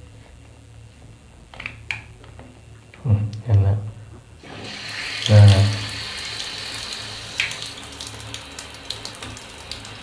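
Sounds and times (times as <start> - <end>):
water spraying from tap sprayer: 4.4 - 10.0.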